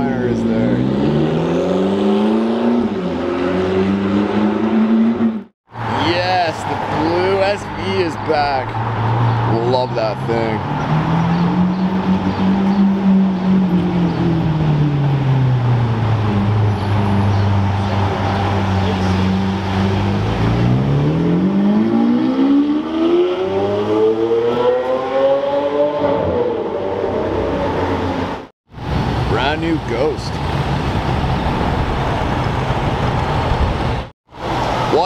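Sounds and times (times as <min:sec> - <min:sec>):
car engine accelerating: 0:10.2 - 0:28.5.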